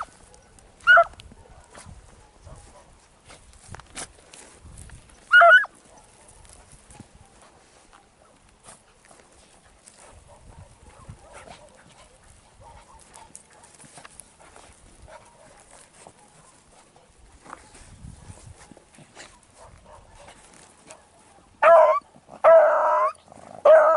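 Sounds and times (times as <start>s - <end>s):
dog barking: 0.0s - 3.0s, 5.3s - 6.5s, 10.0s - 13.8s, 15.1s - 16.8s, 19.2s - 23.9s
rustles of dogs moving: 0.0s - 21.6s.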